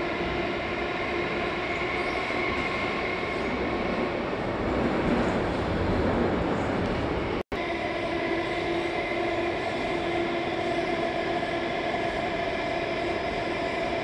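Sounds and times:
metro train rumble: 0.0s - 14.0s
steady humming tone: 0.0s - 14.0s.

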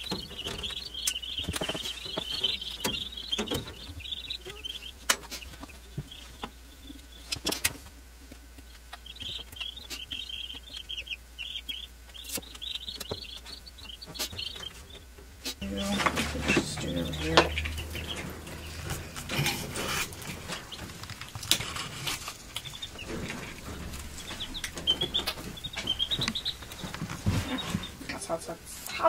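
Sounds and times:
chicks peeping: 0.0s - 29.0s
sharp clicks and knocks: 15.9s - 27.4s.

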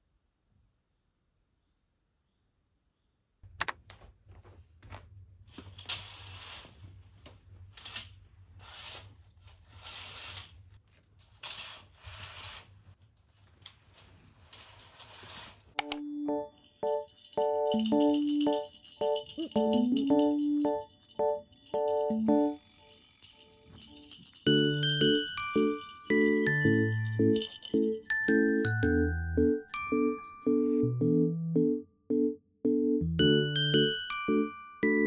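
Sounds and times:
curtain runners sliding on rail: 5.6s - 7.0s, 7.8s - 10.7s, 11.3s - 13.0s, 13.6s - 15.8s
clicks: 15.8s - 16.4s.

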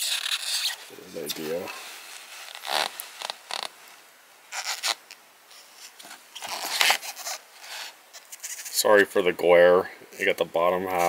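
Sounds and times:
paper poster rustling: 0.0s - 9.0s.

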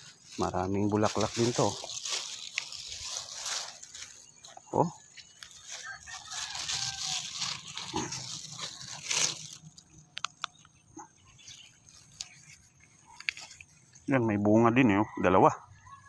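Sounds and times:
plastic bag crinkling: 0.0s - 14.1s.

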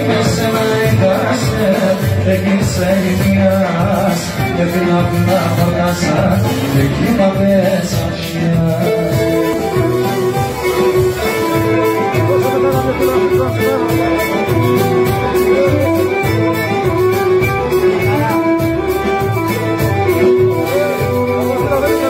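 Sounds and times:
bowed lyra melody: 8.6s - 22.0s.

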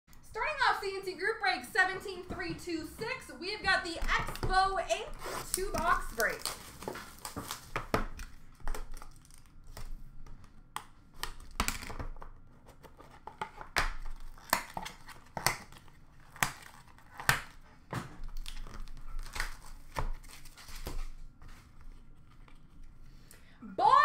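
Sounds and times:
plastic shrink-wrap tearing: 5.1s - 9.8s, 14.0s - 17.6s, 18.2s - 21.0s.

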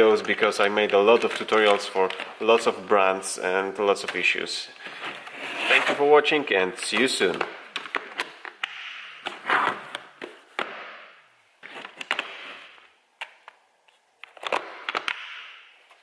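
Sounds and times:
paper and cables rustling: 0.8s - 2.8s.

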